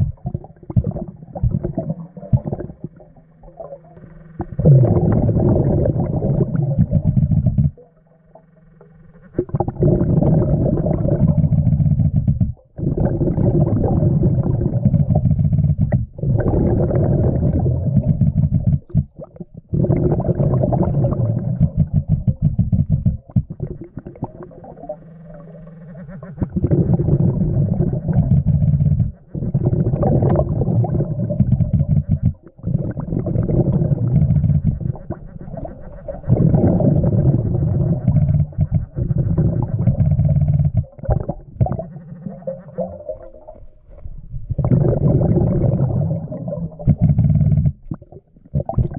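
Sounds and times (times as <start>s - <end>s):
underwater bubbling of exhaled breath: 0.0s - 8.5s, 9.2s - 48.9s.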